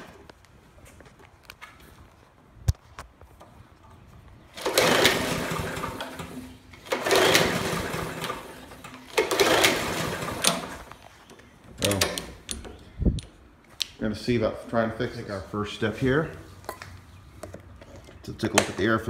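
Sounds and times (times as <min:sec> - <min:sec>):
lawn mower recoil starter whir: 0:04.5 - 0:11.2.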